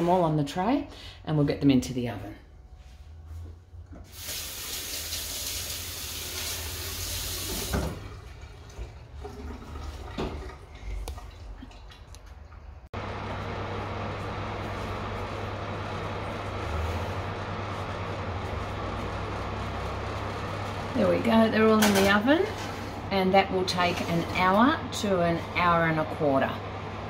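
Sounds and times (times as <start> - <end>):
kitchen tap running: 4.0 - 12.7
oven fan humming: 12.2 - 27.0.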